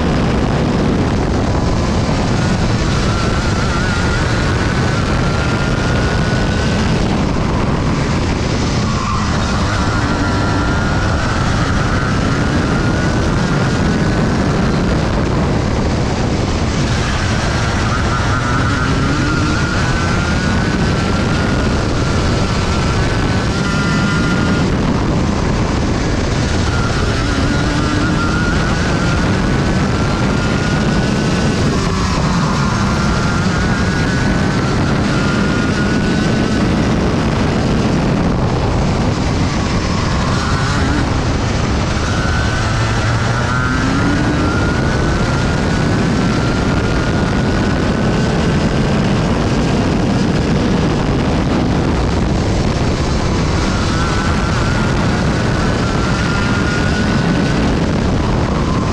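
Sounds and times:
kart engine racing: 0.0s - 58.9s.

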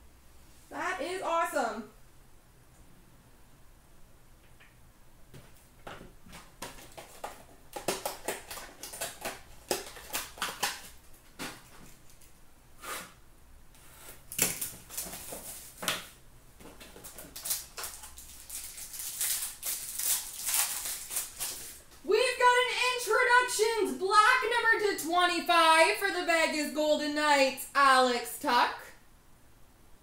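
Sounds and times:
packaging crinkling: 5.8s - 12.4s, 14.0s - 22.0s.

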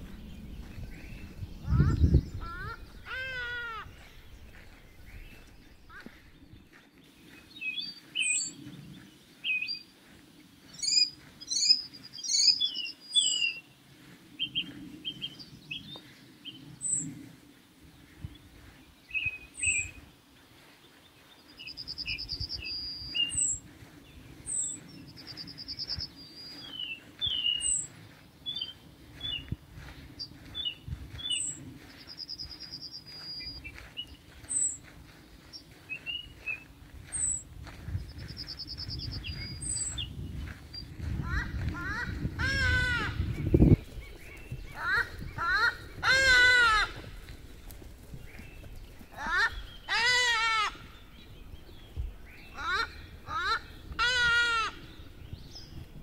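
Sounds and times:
low rumble: 0.0s - 6.8s
songbirds singing: 0.0s - 56.0s.

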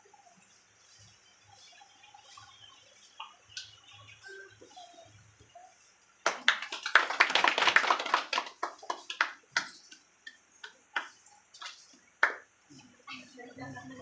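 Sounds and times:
hand clapping: 6.2s - 12.5s.

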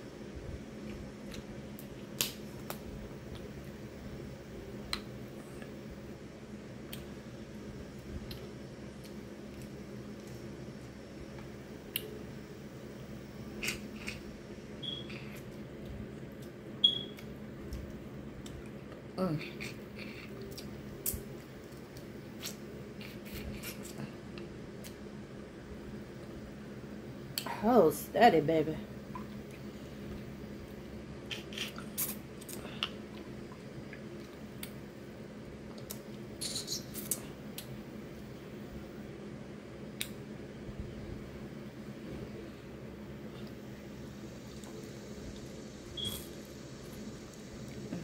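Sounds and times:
steady low hum: 0.0s - 48.0s.

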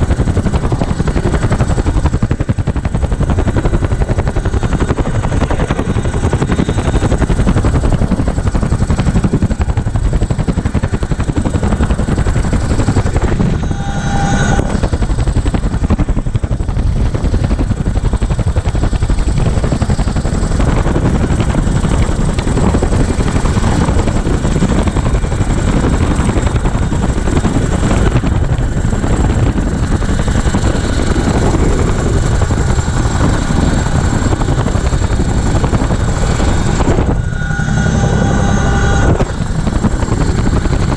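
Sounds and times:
helicopter rotors and engines: 0.0s - 40.9s
high whine: 11.4s - 16.0s, 30.8s - 40.9s
brief pitched tone: 12.9s - 15.0s, 36.0s - 39.8s.

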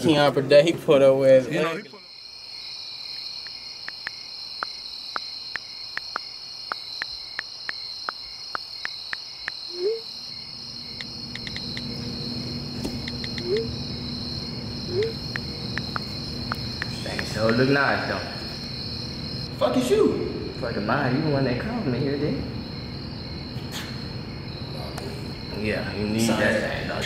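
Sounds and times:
insects trilling: 1.2s - 27.0s
sharp ticks: 3.4s - 9.6s, 10.9s - 11.9s, 13.0s - 13.7s, 14.9s - 17.6s
short rising chirps: 9.7s - 10.1s, 11.0s - 15.9s
low hum: 9.7s - 19.6s.

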